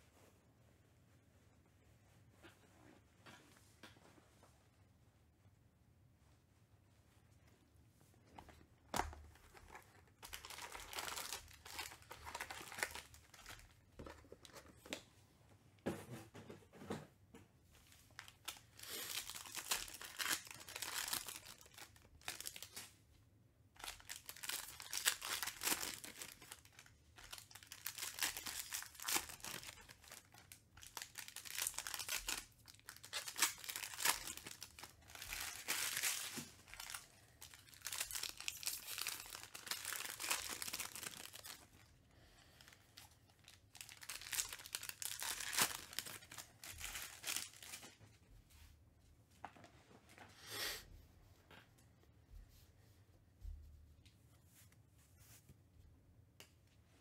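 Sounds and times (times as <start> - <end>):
foil wrappers tearing and crinkling: 9.6 - 13.7, 18.2 - 22.8, 23.8 - 41.7, 43.3 - 47.9.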